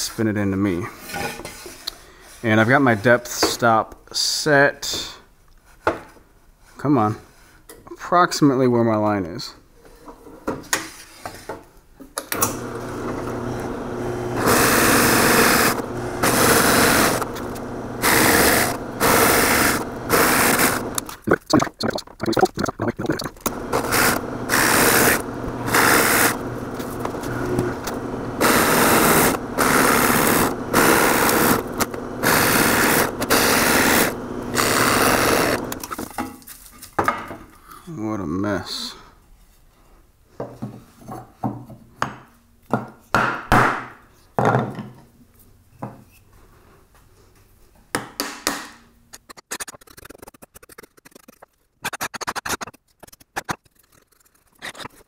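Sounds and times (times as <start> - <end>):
drill press cutting wood: 12.4 - 21.1, 23.5 - 36.0
drill press motor hum: 12.4 - 21.1, 23.5 - 35.9.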